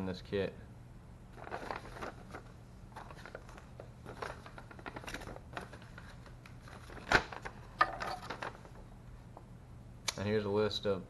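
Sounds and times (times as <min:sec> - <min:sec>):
paper rustling: 0:01.3 - 0:07.6
sharp click: 0:10.0 - 0:10.2.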